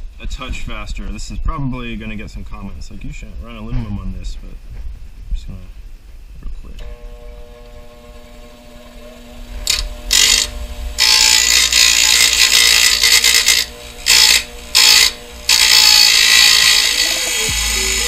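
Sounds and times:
bench grinder motor hum: 6.8 - 18.0
metal grinding on wheel: 9.0 - 18.0.

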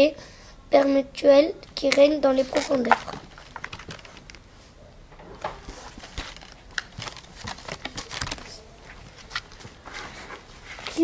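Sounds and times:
paper rustling: 2.3 - 4.4, 5.2 - 11.0.

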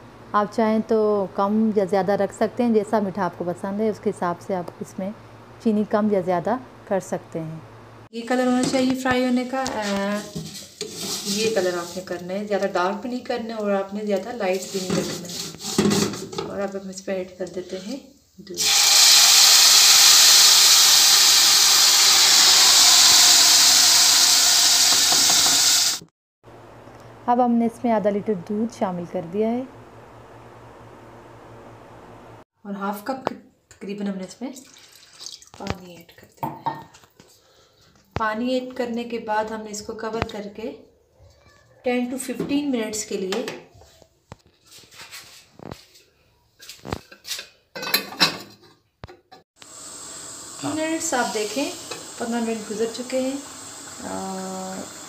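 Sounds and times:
milk sizzling in hot fat: 18.5 - 26.1, 49.6 - 55.0
milk pouring: 34.6 - 35.5.

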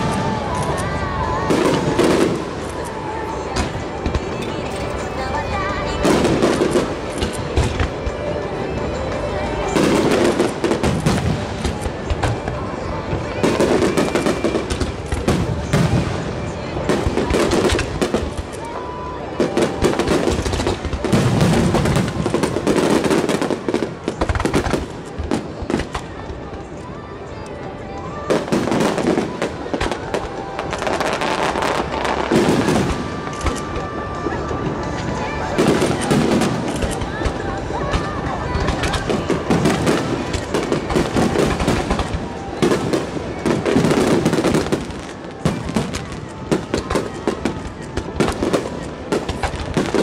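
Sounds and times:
firework crackle: 0.0 - 50.0.

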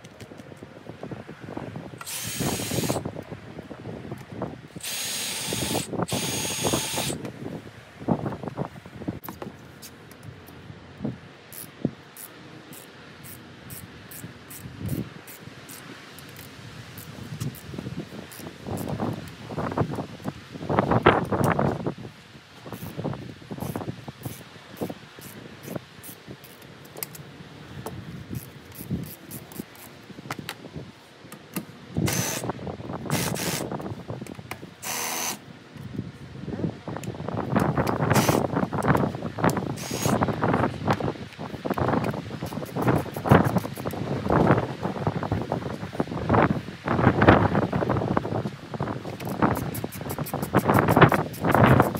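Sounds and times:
cordless drill bursts: 2.0 - 3.0, 4.8 - 7.2, 32.1 - 32.5, 33.1 - 33.7, 34.8 - 35.4, 38.1 - 38.4, 39.8 - 40.2.

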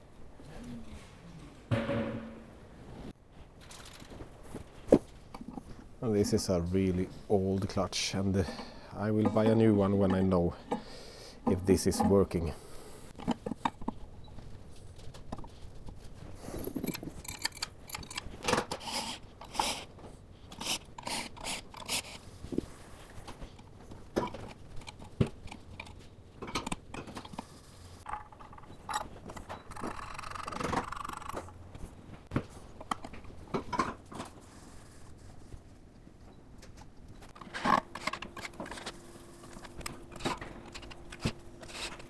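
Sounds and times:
metal parts clicking and knocking: 3.6 - 4.2, 16.6 - 19.8, 23.5 - 31.6, 37.4 - 42.0.

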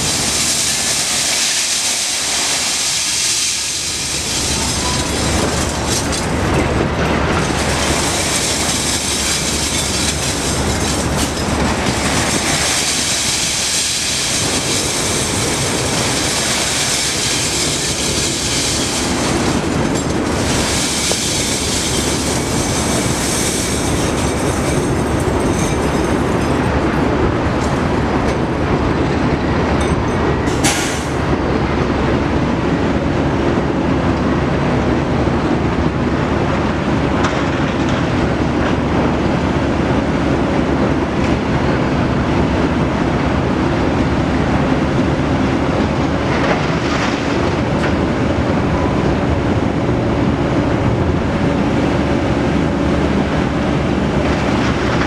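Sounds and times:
scrap metal sliding and clattering: 0.0 - 26.6
diesel truck engine running: 0.0 - 55.0.

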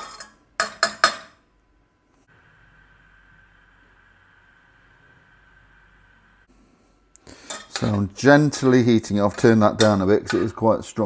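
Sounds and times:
low hum from hob: 0.0 - 11.0
high-pitched electrical whine: 2.2 - 6.5.

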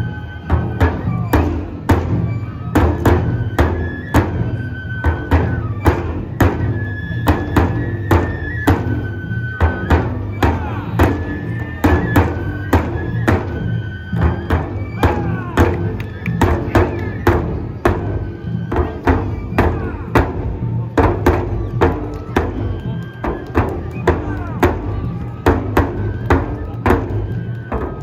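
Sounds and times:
high flute melody: 0.0 - 28.0
taiko drums beating: 0.0 - 28.0.

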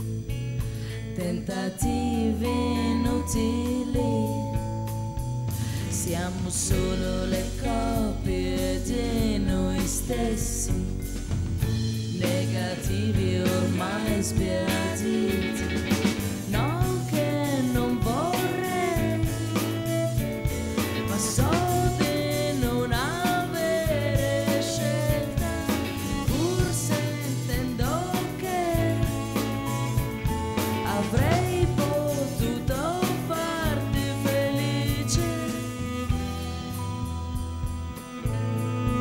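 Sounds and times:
bass line: 0.0 - 39.0
live band playing slow song: 0.0 - 39.0
woman singing wordless phrases: 1.1 - 5.0, 5.8 - 11.0, 12.1 - 15.9, 16.5 - 20.2, 21.0 - 29.9, 30.7 - 36.4.

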